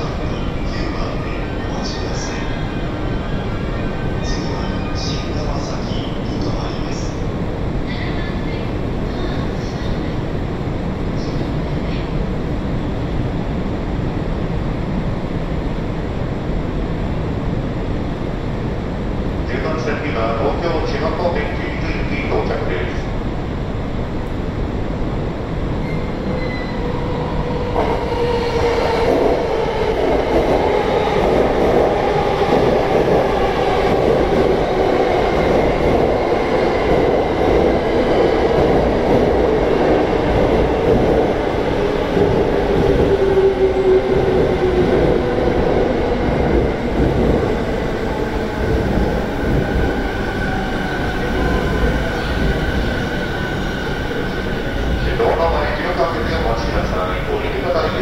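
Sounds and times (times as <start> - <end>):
train wheels rumbling on rails: 24.1 - 58.0.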